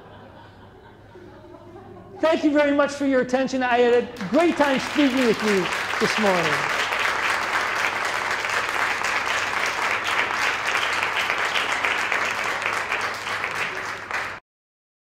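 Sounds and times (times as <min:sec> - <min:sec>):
audience clapping: 0:04.0 - 0:14.4.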